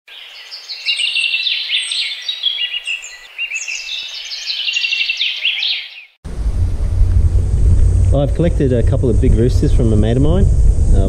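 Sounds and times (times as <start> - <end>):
songbirds singing: 0.1 - 6.2.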